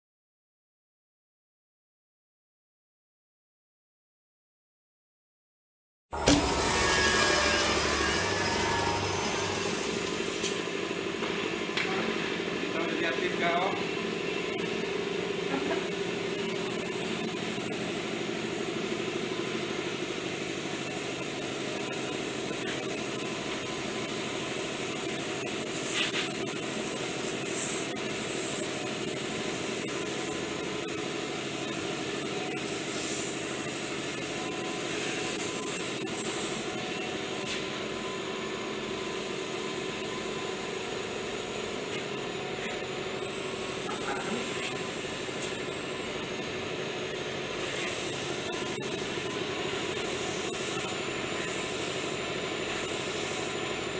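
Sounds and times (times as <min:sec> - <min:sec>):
airbrush hissing: 0:06.2 - 0:11.0, 0:26.7 - 0:28.8, 0:47.6 - 0:53.5
air compressor humming: 0:06.2 - 0:53.9.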